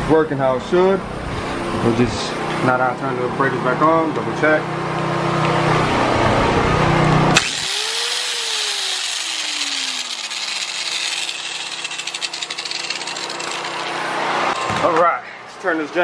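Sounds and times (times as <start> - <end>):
generator droning: 0.8 - 14.8
angle grinder spinning down: 7.3 - 14.9.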